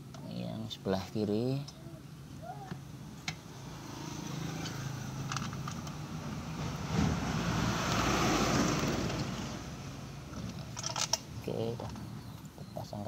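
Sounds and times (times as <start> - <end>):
vehicle passing by: 3.4 - 10.5.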